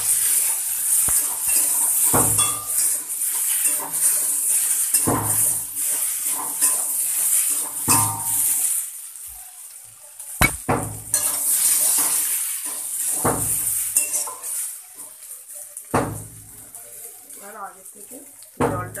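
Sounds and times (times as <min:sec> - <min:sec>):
food sizzling: 0:00.0 - 0:19.0
metal spatula scraping a pan: 0:11.1 - 0:14.8.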